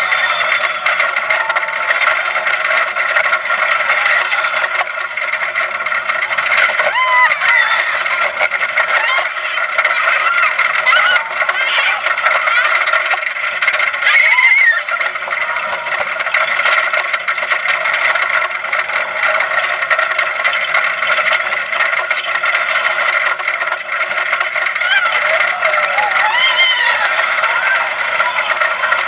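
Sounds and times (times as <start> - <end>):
riders screaming: 0.0 - 17.1, 23.8 - 29.0
roller coaster rattling on track: 0.0 - 29.0.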